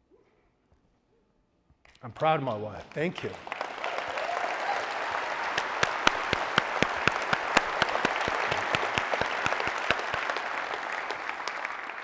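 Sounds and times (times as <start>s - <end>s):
close hands clapping: 2.7s - 12.0s
audience applauding: 2.8s - 12.0s.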